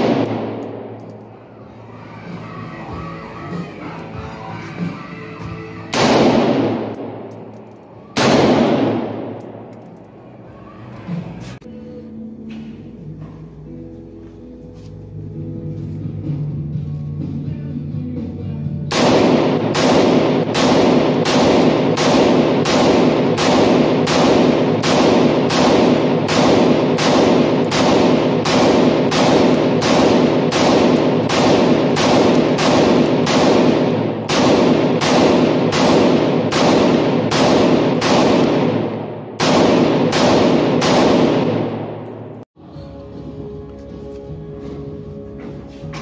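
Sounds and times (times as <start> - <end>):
rifle shots echoing indoors: 0.0 - 1.4, 5.9 - 10.1, 18.9 - 42.5.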